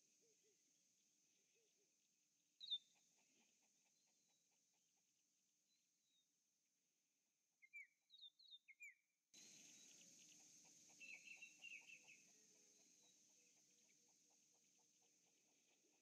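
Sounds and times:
faint steady hiss: 0:00.0 - 0:04.0, 0:09.4 - 0:16.0
bird chattering: 0:09.4 - 0:16.0
birds chirping: 0:09.4 - 0:16.0.

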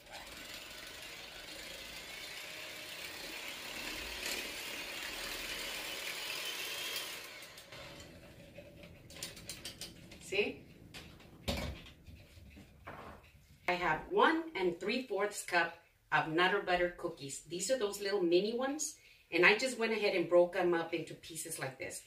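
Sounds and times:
electric hand mixer running: 0:00.0 - 0:08.6
mixer being handled and set down: 0:11.0 - 0:13.3.

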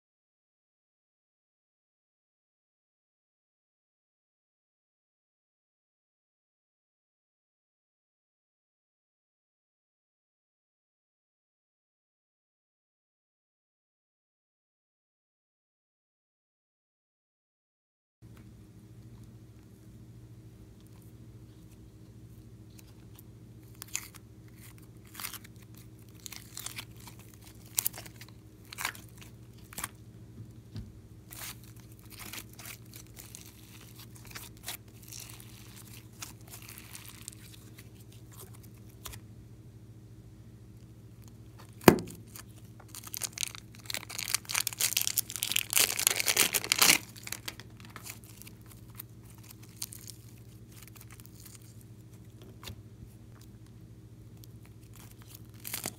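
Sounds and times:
slime crackling and tearing: 0:23.6 - 0:29.9, 0:31.3 - 0:39.2, 0:41.8 - 0:51.8, 0:54.4 - 0:55.9
slime squishing and popping: 0:41.8 - 0:51.7.

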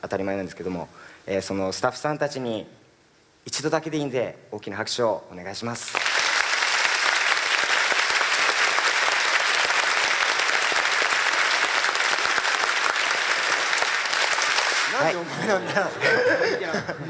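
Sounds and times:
audience applauding: 0:05.9 - 0:15.3.

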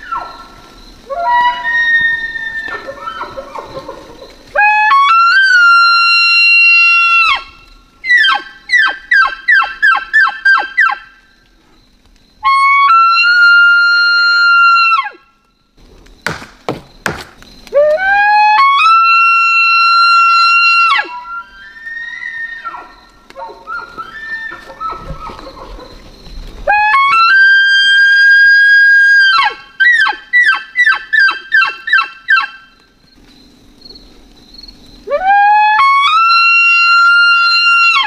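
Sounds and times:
elk call blown through tube: 0:01.1 - 0:03.5, 0:04.6 - 0:11.0, 0:12.4 - 0:15.2, 0:17.8 - 0:22.9, 0:26.7 - 0:32.6, 0:35.1 - 0:38.0
sharp knocks: 0:16.2 - 0:17.4.

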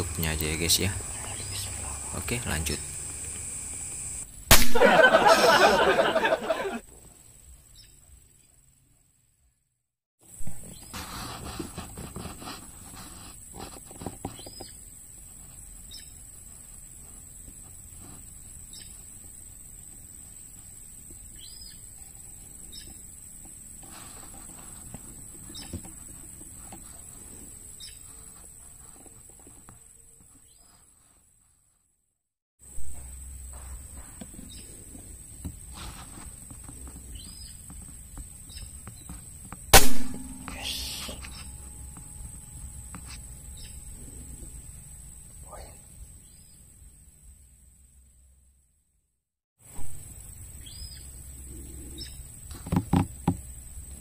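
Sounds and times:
thin high electronic whine: 0:00.0 - 0:06.6, 0:38.6 - 0:48.3
faint hiss: 0:00.0 - 0:09.1, 0:10.2 - 0:31.4, 0:33.1 - 0:48.6
faint chirps: 0:00.0 - 0:09.6, 0:32.8 - 0:48.4, 0:49.8 - 0:52.6
air rifle shot: 0:04.5 - 0:05.2, 0:39.7 - 0:41.3
short rustle: 0:10.6 - 0:14.5
high-pitched whine: 0:39.8 - 0:47.4
rustling and knocking on microphone: 0:52.5 - 0:53.5.

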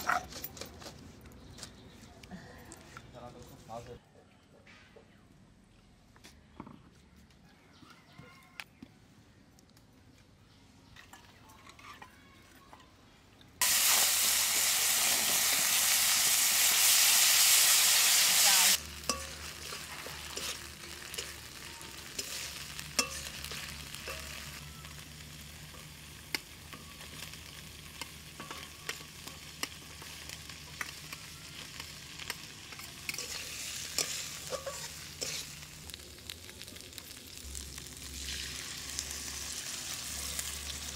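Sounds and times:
loud sizzle: 0:13.6 - 0:40.9
oil sizzling in wok: 0:13.6 - 0:40.9
metal spatula scraping wok: 0:17.7 - 0:26.1, 0:26.7 - 0:36.0.

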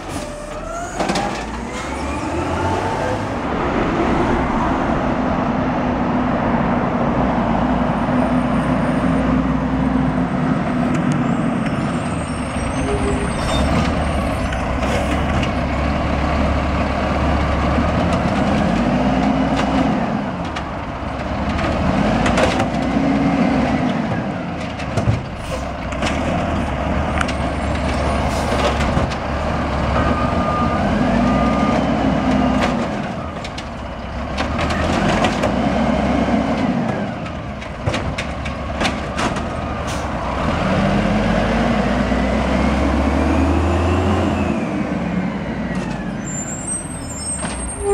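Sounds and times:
diesel engine revving: 0:00.0 - 0:47.9
clanks of carts and arm: 0:36.5 - 0:40.1.

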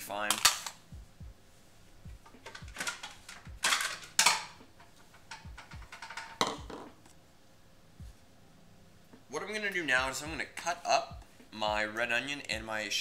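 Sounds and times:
dishes clattering: 0:02.8 - 0:04.6, 0:05.3 - 0:06.9.

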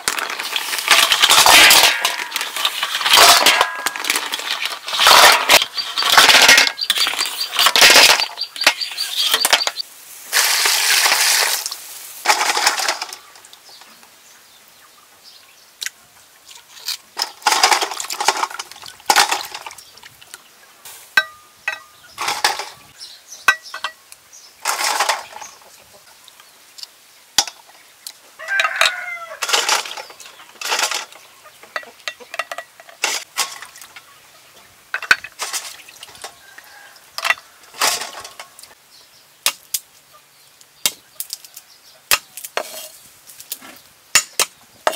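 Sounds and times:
snails clattering in metal pot: 0:00.0 - 0:13.8, 0:16.6 - 0:19.9, 0:21.2 - 0:22.9, 0:24.6 - 0:25.6, 0:28.5 - 0:34.1, 0:34.9 - 0:38.8
rooster crowing: 0:28.4 - 0:29.4, 0:36.3 - 0:37.8.

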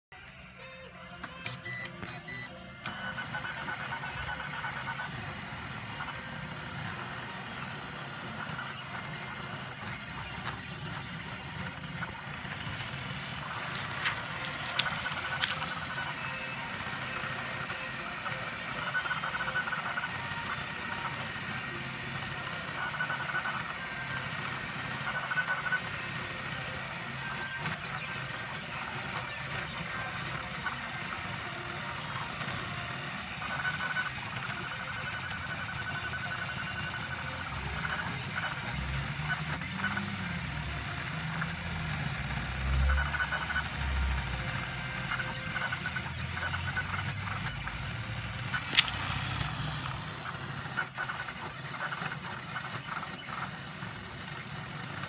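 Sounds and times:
stepper motors whining and buzzing: 0:00.2 - 0:55.0
sharp clicks: 0:48.4 - 0:50.0.

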